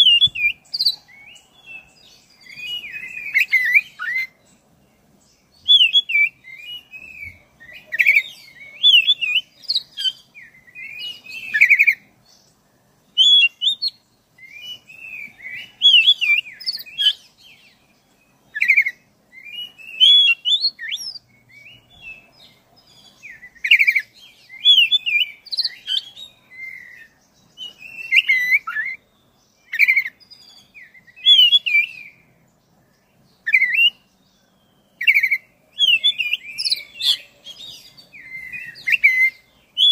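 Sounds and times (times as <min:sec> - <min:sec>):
magpie-robin singing: 0:00.0 - 0:39.9.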